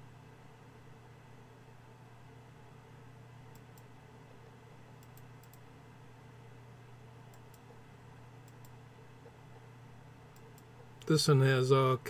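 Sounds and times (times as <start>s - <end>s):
low steady hum: 0.0s - 12.0s
computer mouse clicks: 5.0s - 5.7s, 7.3s - 7.8s, 8.4s - 8.8s, 10.3s - 10.7s.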